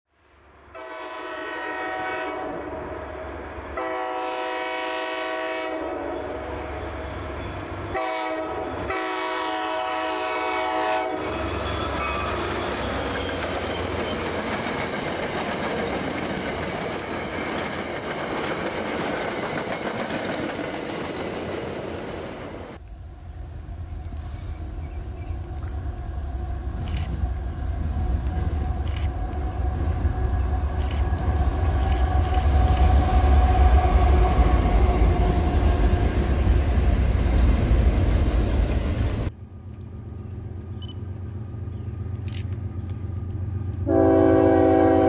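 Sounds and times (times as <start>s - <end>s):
locomotive air horn blasts: 0.7s - 3.1s, 3.8s - 7.2s, 7.9s - 12.2s, 43.8s - 45.0s
train rumble: 1.8s - 45.0s
wheels clacking over rail joints: 11.2s - 22.2s.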